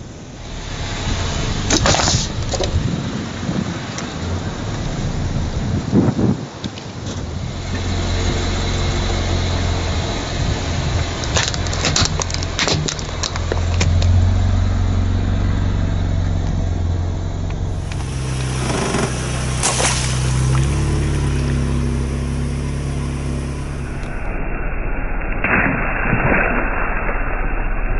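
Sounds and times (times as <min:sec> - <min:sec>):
car engine running: 0:00.0 - 0:25.1
objects crunching under tyre: 0:00.6 - 0:05.2, 0:10.8 - 0:14.6, 0:17.5 - 0:24.1
water balloon bursting: 0:01.6 - 0:03.0, 0:17.7 - 0:22.0.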